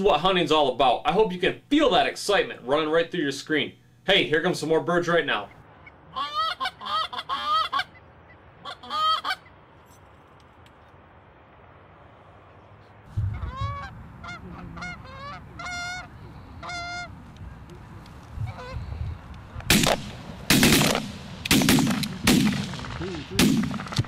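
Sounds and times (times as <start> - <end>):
geese honking: 5.3 - 9.6, 13.1 - 19.0
shotgun blasts: 19.7 - 24.0.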